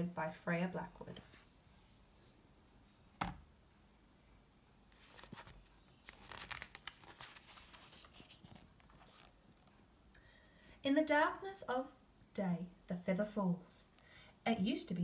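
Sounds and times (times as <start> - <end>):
paper rustling page turning: 4.9 - 9.8.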